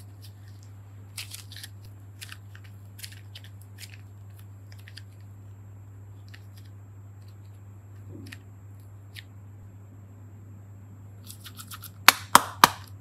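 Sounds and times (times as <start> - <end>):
clay sticky crackles and clicks: 0.0 - 5.3, 6.2 - 9.3, 11.2 - 13.0
steady low hum: 0.0 - 13.0.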